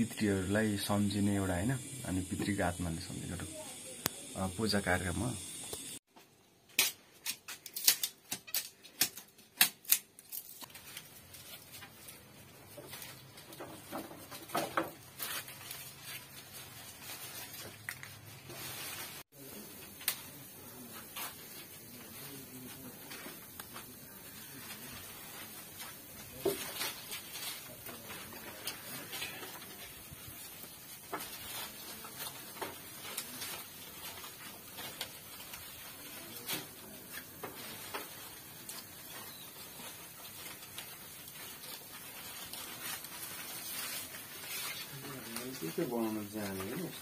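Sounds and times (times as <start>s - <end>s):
stems snapping: 6.7s - 11.0s
leafy branches rustling: 10.2s - 47.0s.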